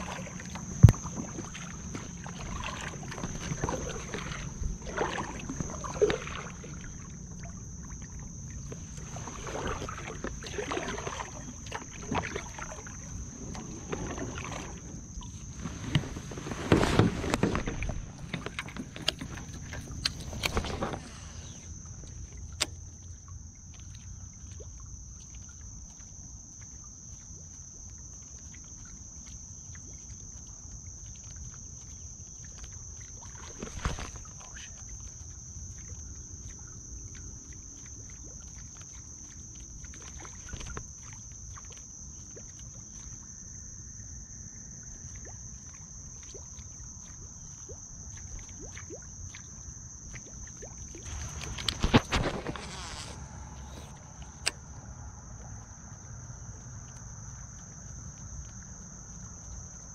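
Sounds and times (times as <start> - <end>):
high-pitched insect drone: 50.9 - 59.9.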